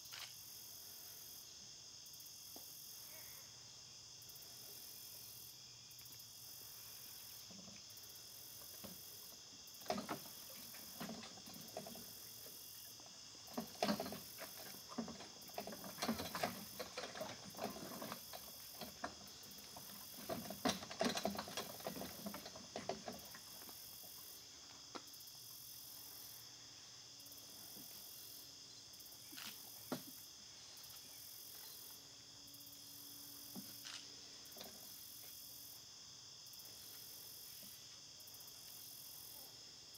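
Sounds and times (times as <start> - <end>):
insect chorus trilling: 0.0 - 39.9.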